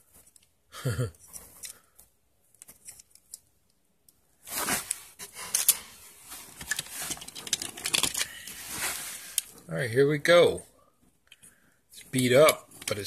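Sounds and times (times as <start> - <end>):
toy cars clicking and knocking: 6.6 - 8.4, 12.4 - 13.0.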